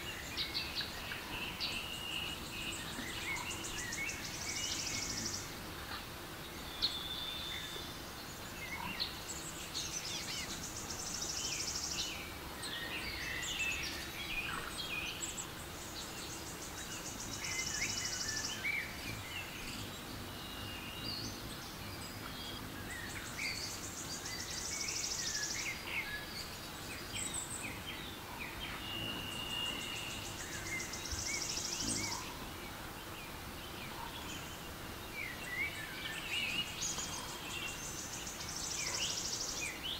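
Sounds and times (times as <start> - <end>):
insect high rapid buzz: 0.0 - 39.9
low steady background hush: 0.0 - 39.9
birds chirping and whistling: 16.8 - 32.5.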